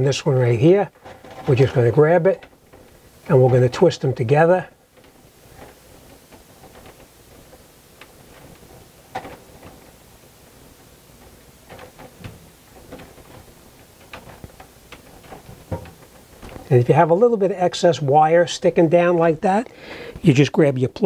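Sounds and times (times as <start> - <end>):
wires twisted together clicking: 0.9 - 17.1.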